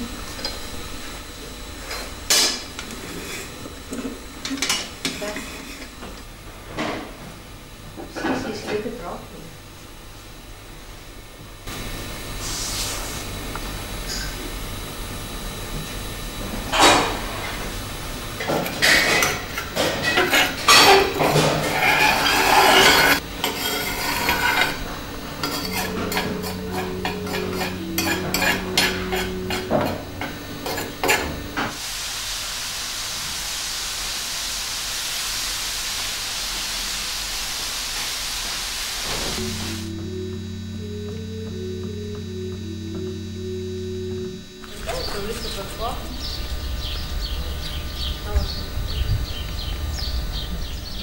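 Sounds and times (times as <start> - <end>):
steady even hiss: 11.7 - 13.9, 21.8 - 47.8
held low tones: 13.3 - 31.8, 39.4 - 51.0
objects clattering and knocking: 18.4 - 31.8.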